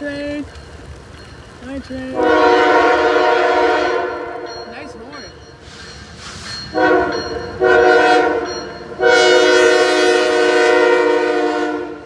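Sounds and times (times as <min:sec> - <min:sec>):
locomotive air horn blasts: 0:02.2 - 0:04.5, 0:06.7 - 0:12.0.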